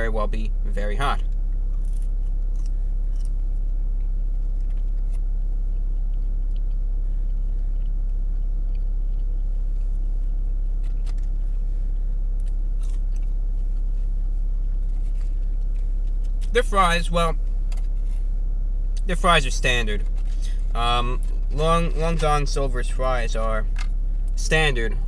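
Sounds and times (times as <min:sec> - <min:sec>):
car engine idling: 0:00.0 - 0:25.0
chewing: 0:01.3 - 0:16.5.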